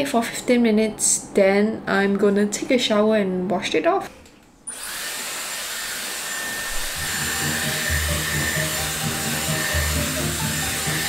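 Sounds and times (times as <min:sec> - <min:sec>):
hot-air styling brush blowing: 0:04.7 - 0:11.0.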